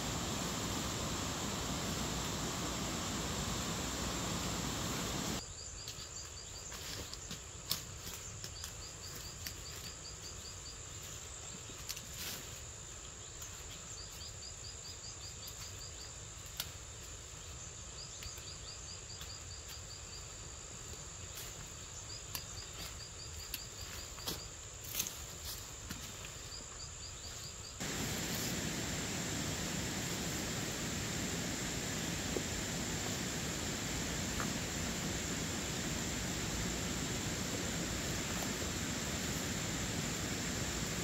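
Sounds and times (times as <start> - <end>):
loud steady hiss: 0.0 - 5.5, 27.4 - 41.0
insects ticking: 0.0 - 12.1, 17.7 - 41.0
clicks and rustles of plants: 5.8 - 10.4, 11.0 - 14.2, 20.9 - 26.4
high-pitched insect drone: 27.8 - 41.0.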